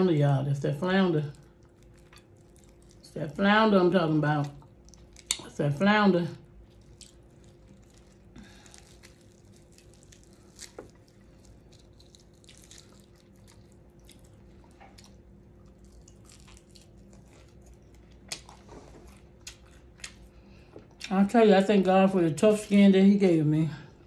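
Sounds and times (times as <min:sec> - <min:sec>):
low room hum: 0:00.0 - 0:24.0
person chewing crispy food: 0:01.2 - 0:03.4, 0:04.3 - 0:05.5, 0:06.4 - 0:21.1.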